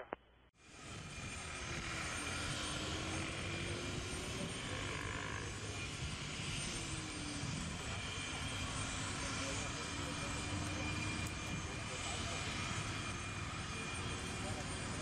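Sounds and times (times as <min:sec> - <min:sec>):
jet engines idling while taxiing: 0:00.6 - 0:15.0.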